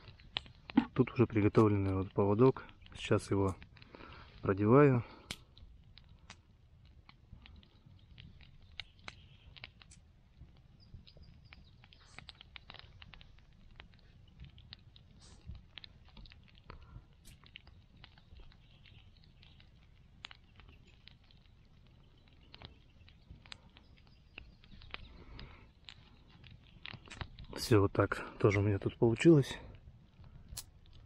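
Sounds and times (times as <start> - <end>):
small clicks and rustles of hands: 0.0 - 31.0.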